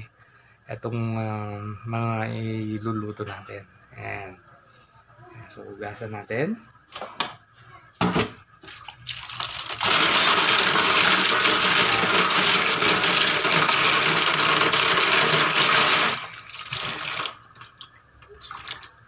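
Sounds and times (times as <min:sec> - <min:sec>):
tap water running into bowl: 0:08.6 - 0:18.9.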